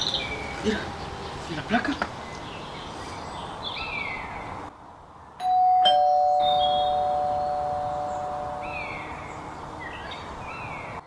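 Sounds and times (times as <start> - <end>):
doorbell ding-dong chime: 5.4 - 8.9.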